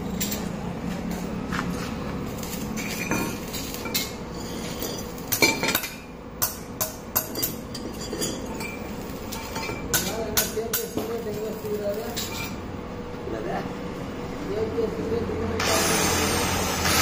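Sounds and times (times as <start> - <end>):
steel tubing clinking: 2.5 - 6.0, 7.2 - 11.1.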